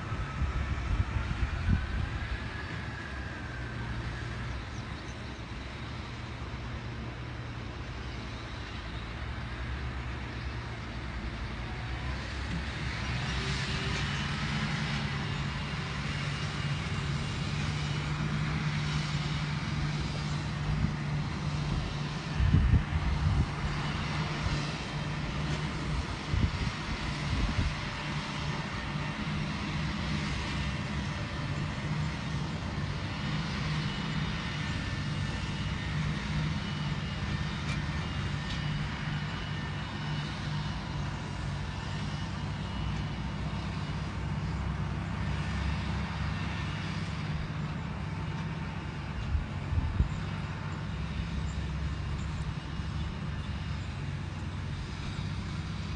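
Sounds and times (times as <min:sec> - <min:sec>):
tractor diesel engine under load: 0:00.0 - 0:55.9.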